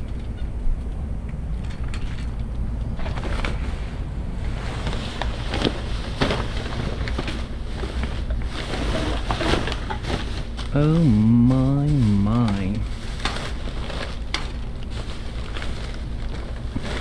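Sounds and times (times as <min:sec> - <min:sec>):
rustling and knocks: 0:03.0 - 0:10.8.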